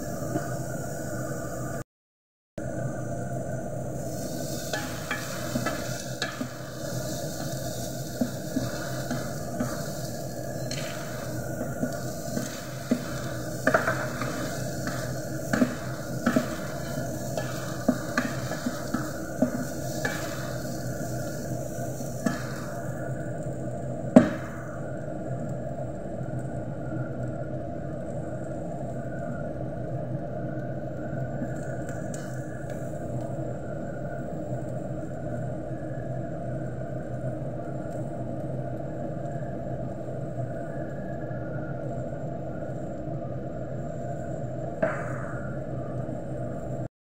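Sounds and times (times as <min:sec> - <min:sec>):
carrots sizzling in a pot: 0:03.6 - 0:24.8
spatula tapping and scraping pan: 0:04.3 - 0:21.4, 0:22.0 - 0:22.8.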